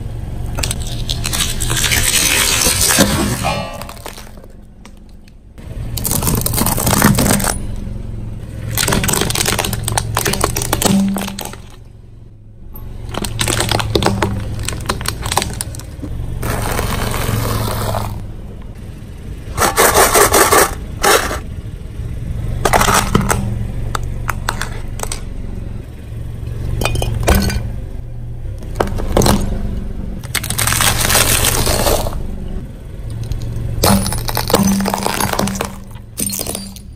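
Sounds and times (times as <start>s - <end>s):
car engine humming: 0.0s - 36.9s
plastic toys cracking under tyre: 0.6s - 5.4s, 6.0s - 7.6s, 8.7s - 11.8s, 13.0s - 18.2s, 30.2s - 32.2s, 33.1s - 36.9s.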